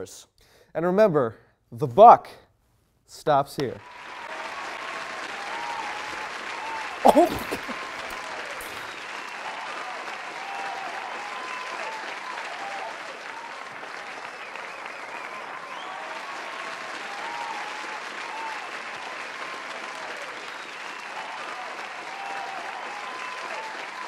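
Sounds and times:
applause: 0:03.8 - 0:24.0
voices calling out: 0:07.0 - 0:08.9.

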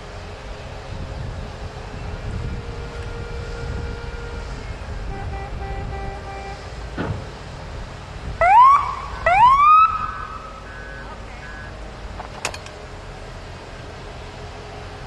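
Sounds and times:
low construction rumble: 0:00.0 - 0:15.0
rising siren whoops: 0:08.4 - 0:10.6.

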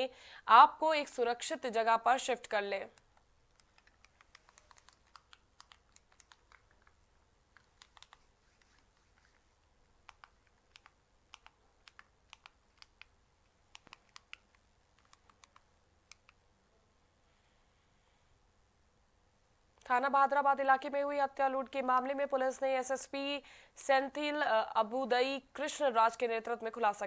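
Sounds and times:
faint sharp clicks: 0:10.0 - 0:16.4.

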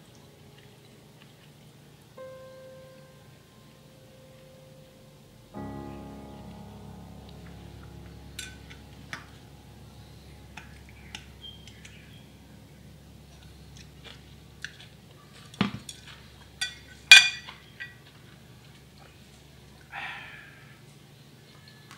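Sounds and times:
ceramic bowl ringing clink: 0:16.6 - 0:18.0.

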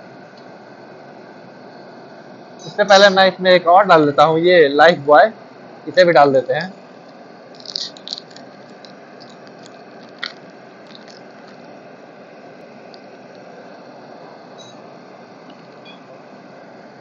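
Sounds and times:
oil crackling and popping: 0:07.0 - 0:13.5.

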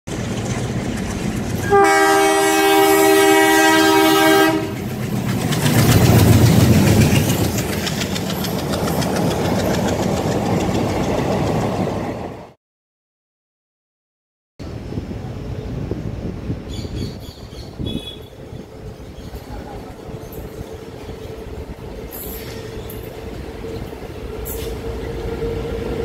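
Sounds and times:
locomotive rumble: 0:00.1 - 0:12.6, 0:14.6 - 0:26.0
train horn chord: 0:01.6 - 0:04.8
wheel clatter over rail joints: 0:04.7 - 0:11.8.

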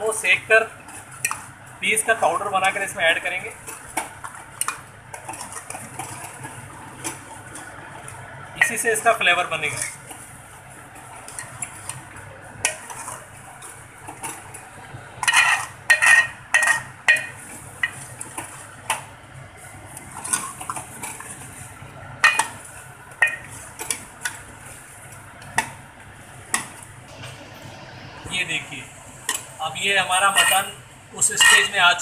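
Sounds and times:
ladle scraping metal pot: 0:00.7 - 0:18.9, 0:19.9 - 0:25.6.

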